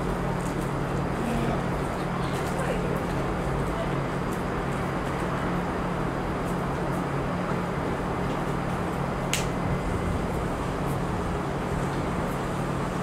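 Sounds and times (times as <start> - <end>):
distant traffic hum and hiss: 5.7 - 13.0.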